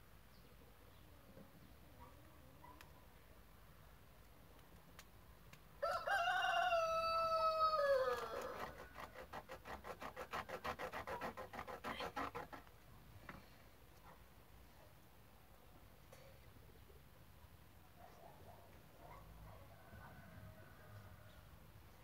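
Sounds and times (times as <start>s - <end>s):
rooster crowing: 5.8s - 9.0s, 19.7s - 21.5s.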